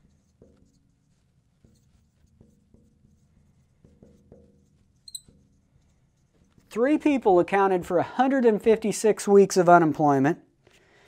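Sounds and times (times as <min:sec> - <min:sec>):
marker writing on glass: 0:00.0 - 0:06.9
marker squeak: 0:05.0 - 0:05.6.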